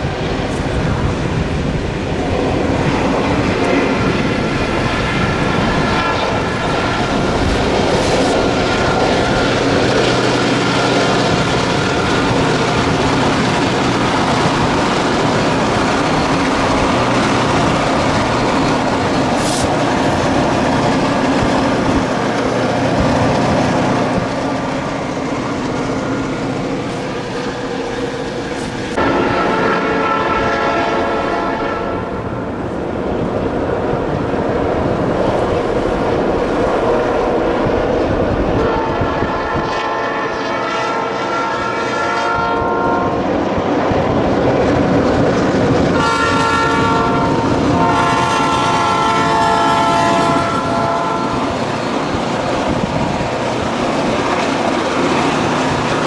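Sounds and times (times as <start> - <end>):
train wheels clacking on rails: 0.0 - 29.7, 31.2 - 56.0
diesel locomotive engines: 0.0 - 56.0
train horn: 5.8 - 6.8, 28.9 - 32.4, 38.5 - 43.2, 46.0 - 51.6.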